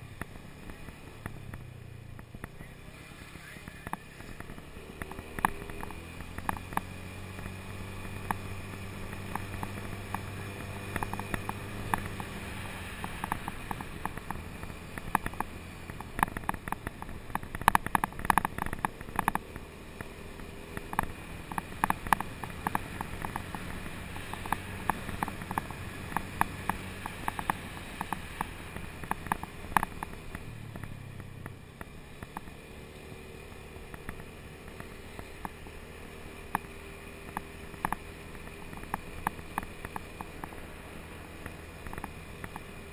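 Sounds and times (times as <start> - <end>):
road and wind noise: 0.0 - 42.9
scooter engine humming: 0.0 - 42.9
small sharp clicks and rattles: 3.8 - 10.3, 10.9 - 32.5, 36.5 - 40.8, 41.4 - 42.8.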